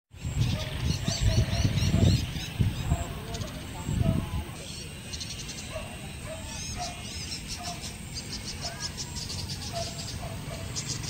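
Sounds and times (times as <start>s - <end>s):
wind on microphone: 0.1s - 4.7s
birds chirping: 0.1s - 11.0s
insects trilling: 0.2s - 11.0s.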